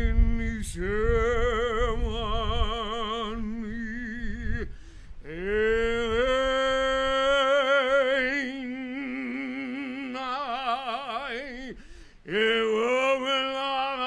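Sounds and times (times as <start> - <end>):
man singing held notes with vibrato: 0.0 - 14.0
person breathing: 4.7 - 5.2, 11.7 - 12.3.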